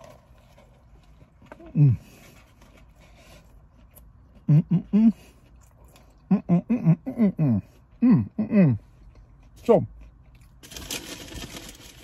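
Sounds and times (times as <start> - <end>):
man chewing: 0.0 - 6.8, 7.6 - 12.0
man humming with mouth full: 6.3 - 8.8.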